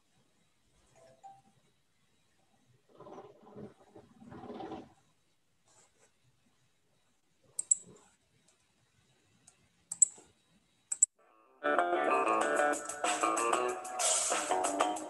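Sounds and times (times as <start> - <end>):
upbeat guitar music: 11.7 - 15.0.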